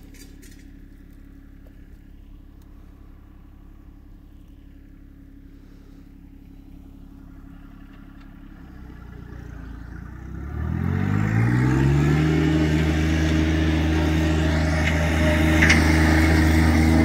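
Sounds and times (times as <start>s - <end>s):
tractor diesel engine revving: 6.8s - 17.0s.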